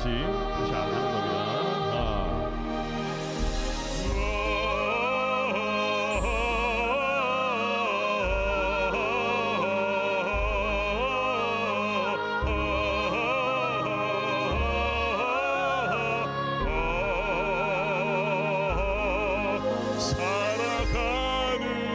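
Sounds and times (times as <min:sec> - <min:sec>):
male operatic voice with vibrato: 0:00.0 - 0:02.8, 0:04.0 - 0:21.9
backing accompaniment: 0:00.0 - 0:17.4.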